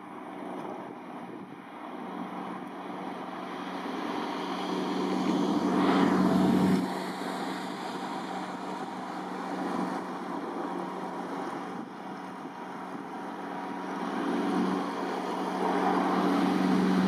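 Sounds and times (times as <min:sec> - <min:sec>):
tugboat engine running: 0:00.0 - 0:17.0
rushing water swell: 0:03.5 - 0:17.0.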